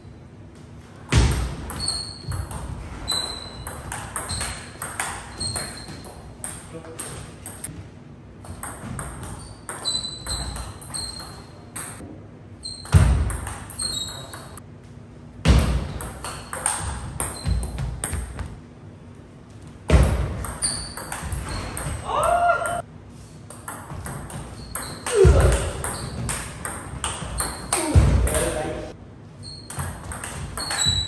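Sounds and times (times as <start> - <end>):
shoes squeaking on wooden floor: 1.7 - 3.7, 4.3 - 6.4, 9.3 - 11.6, 20.6 - 22.1, 23.9 - 26.5, 29.4 - 31.0
person crying out: 22.0 - 22.8.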